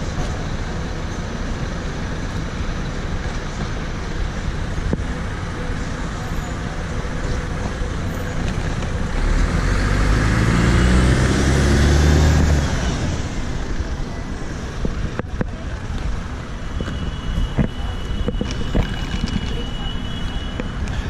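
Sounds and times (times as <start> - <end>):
bus engine passing: 0.0 - 16.6
road traffic noise: 0.0 - 21.0.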